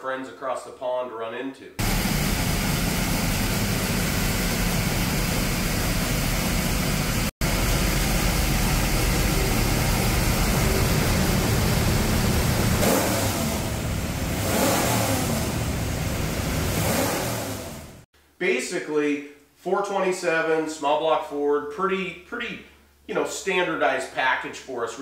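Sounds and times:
vee eight engine running: 1.8s - 18.0s.

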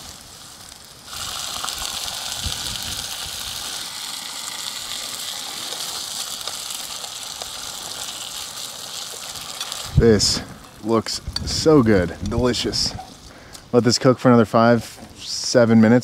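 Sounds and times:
chicken sizzling in oil: 0.0s - 11.7s.

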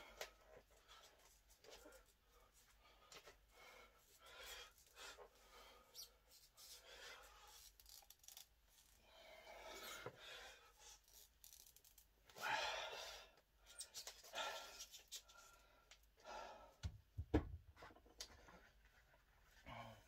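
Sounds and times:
hands rubbing and scraping wraps: 5.9s - 9.0s, 10.8s - 12.1s, 13.7s - 15.6s.

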